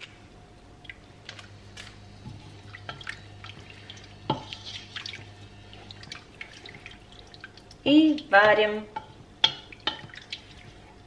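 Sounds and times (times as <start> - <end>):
faint low hum: 0.0 - 11.0
liquid popping in a pot: 9.0 - 10.5.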